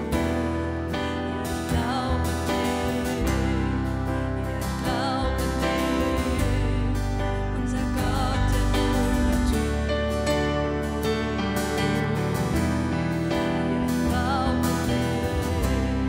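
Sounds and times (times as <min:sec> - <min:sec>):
deep bass notes: 0:00.0 - 0:16.0
keyboard: 0:00.0 - 0:16.0
strummed acoustic guitar: 0:00.0 - 0:16.0
women singing: 0:01.4 - 0:09.9, 0:13.7 - 0:16.0.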